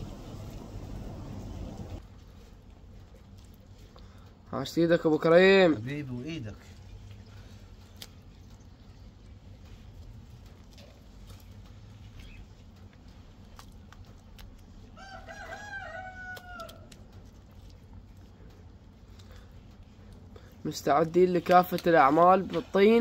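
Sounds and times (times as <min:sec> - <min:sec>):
steady low hum: 0:00.0 - 0:15.3, 0:16.8 - 0:23.0
rooster crowing: 0:15.0 - 0:16.9.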